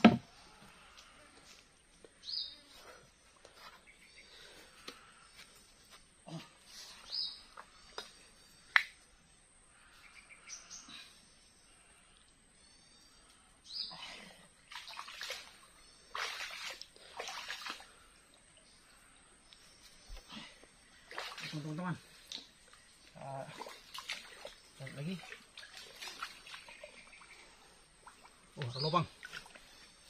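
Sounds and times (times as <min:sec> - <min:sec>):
small birds chirping: 0:01.9 - 0:30.0
water and mud sloshing: 0:14.7 - 0:18.1, 0:21.0 - 0:22.5, 0:23.2 - 0:27.4.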